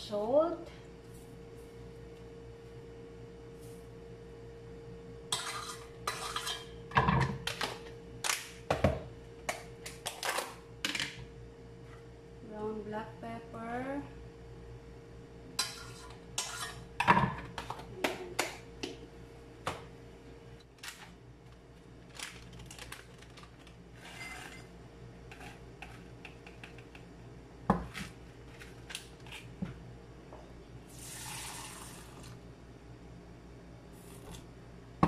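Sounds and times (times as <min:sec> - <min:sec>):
plastic packet rustling: 0:20.8 - 0:23.8.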